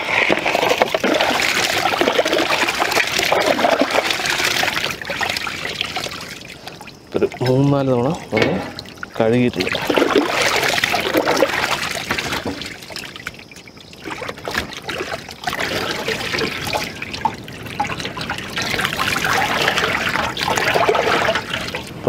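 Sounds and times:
water trickling and splashing: 0.0s - 22.0s.

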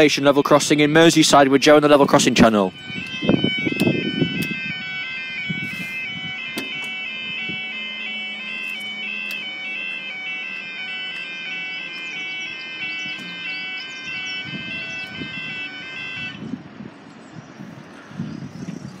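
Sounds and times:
level crossing warning alarm: 0.0s - 16.8s
sharp clicks: 3.0s - 4.6s.

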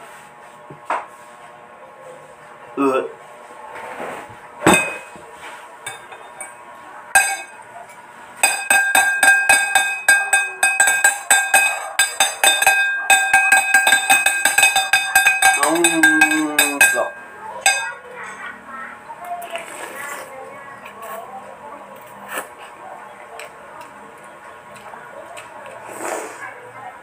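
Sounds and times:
spoon and fork clinking on bowl: 4.7s - 5.2s, 5.8s - 6.6s, 7.2s - 18.4s.

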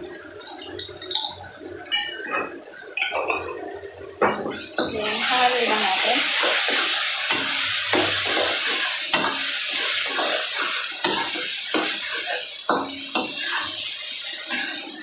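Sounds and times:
meat sizzling in a frying pan: 4.5s - 15.0s.

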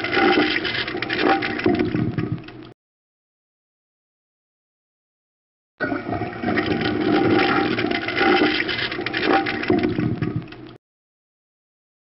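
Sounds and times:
toilet flushing: 0.0s - 2.3s, 5.8s - 10.6s.

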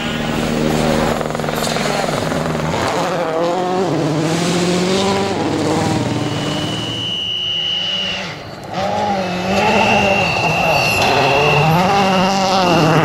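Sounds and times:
rally car engine revving: 0.0s - 13.0s
high steady whistle: 6.2s - 8.6s, 9.2s - 13.0s.

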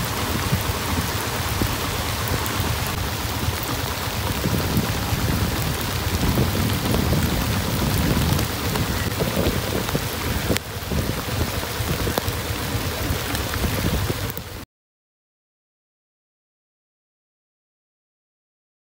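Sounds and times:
heavy rain pouring: 0.0s - 14.6s.

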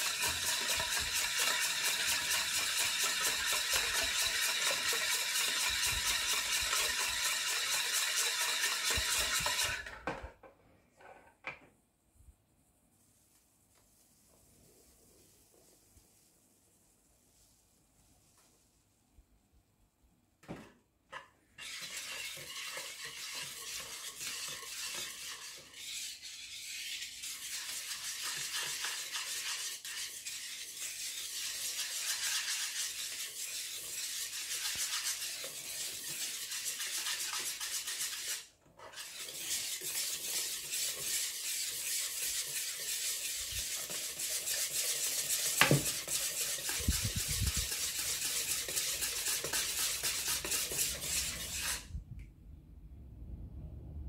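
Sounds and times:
whisk scraping in batter bowl: 0.0s - 10.0s, 21.6s - 52.0s.

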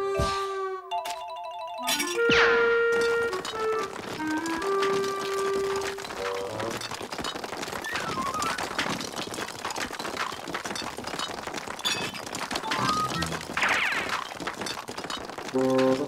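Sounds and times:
cartoon music: 0.8s - 6.0s
ice cubes clattering: 2.8s - 16.0s.

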